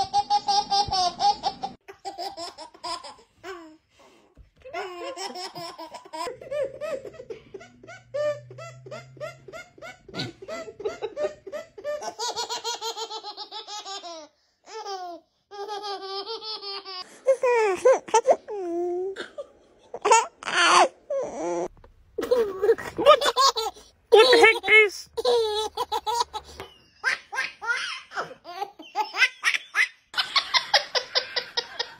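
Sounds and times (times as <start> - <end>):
babies laughing: 4.7 - 18.5, 22.2 - 31.9.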